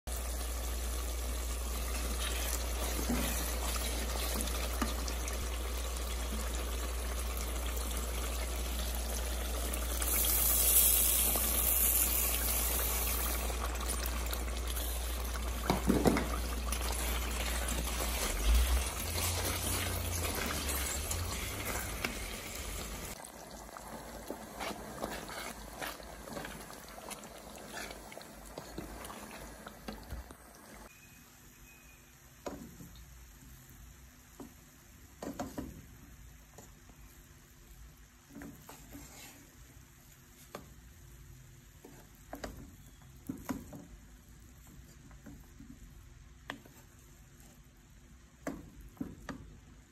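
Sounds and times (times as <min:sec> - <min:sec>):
stew simmering and bubbling: 0:00.0 - 0:31.0, 0:32.4 - 0:49.9
wooden spoon stirring: 0:01.9 - 0:05.4, 0:10.0 - 0:30.4, 0:38.3 - 0:39.7, 0:41.8 - 0:49.8.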